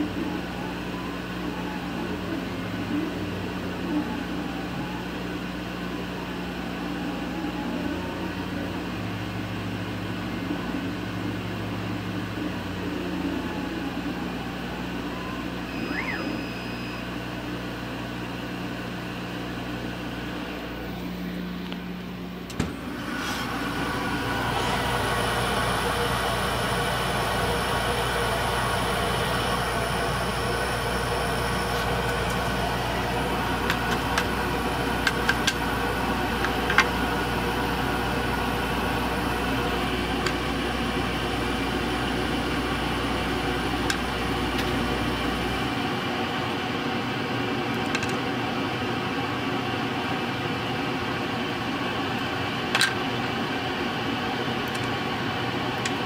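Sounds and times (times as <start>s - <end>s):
fans and air pump humming: 0.0s - 56.0s.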